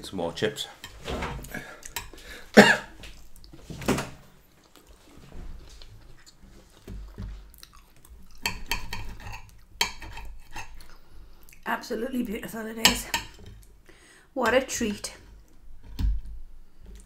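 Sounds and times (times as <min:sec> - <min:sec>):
chewing: 0:03.0 - 0:03.7, 0:04.4 - 0:11.7.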